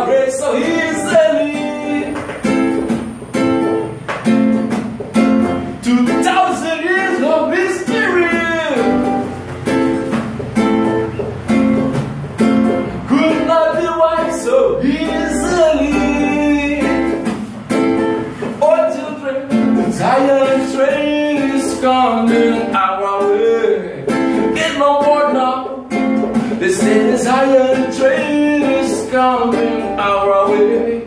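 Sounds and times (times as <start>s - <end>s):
man singing: 0.0s - 2.6s, 5.7s - 9.3s, 13.0s - 17.2s, 18.6s - 31.0s
acoustic guitar strumming: 0.0s - 31.0s.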